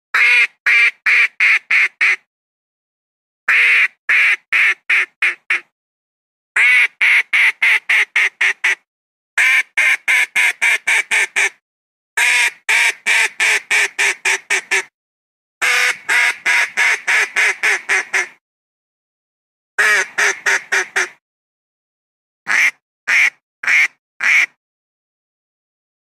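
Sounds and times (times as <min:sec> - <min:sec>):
duck quacking: 0:00.2 - 0:02.2, 0:03.5 - 0:05.7, 0:06.6 - 0:08.8, 0:12.2 - 0:14.9, 0:15.6 - 0:18.4, 0:19.8 - 0:21.2, 0:22.5 - 0:24.6.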